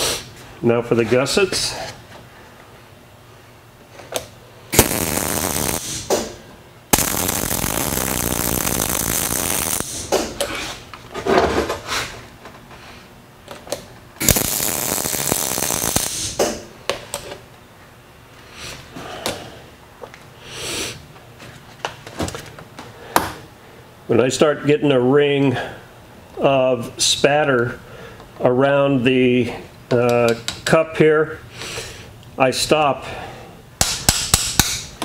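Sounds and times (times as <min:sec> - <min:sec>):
welder arc crackling: 0:04.7 - 0:10.4, 0:14.2 - 0:16.6.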